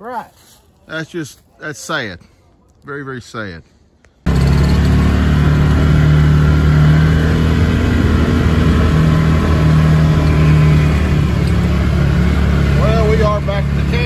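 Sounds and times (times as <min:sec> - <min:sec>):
utility vehicle engine droning: 0:04.3 - 0:14.0.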